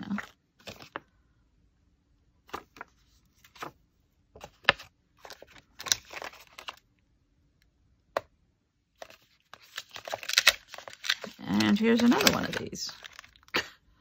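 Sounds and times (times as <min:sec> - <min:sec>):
plastic and paper packets rustling: 0:00.0 - 0:01.0, 0:04.4 - 0:06.9, 0:09.0 - 0:13.6.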